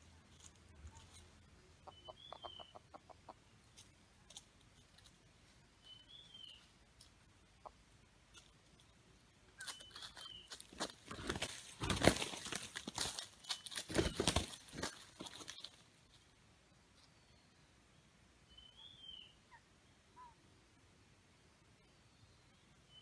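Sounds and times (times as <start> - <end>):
roosters scuffling in dry leaves: 0.0 - 2.0, 3.6 - 7.2, 9.6 - 16.4
roosters clucking: 0.0 - 5.6, 9.6 - 16.2
feet ticking in dry leaves: 9.6 - 16.2.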